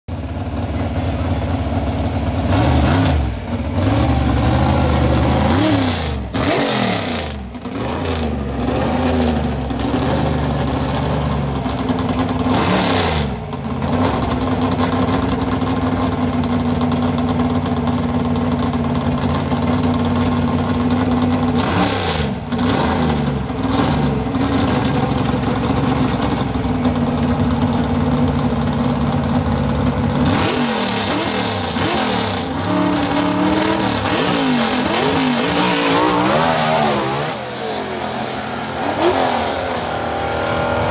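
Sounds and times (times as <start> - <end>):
car engine revving: 2.4 - 11.3, 21.5 - 28.2, 29.9 - 40.9.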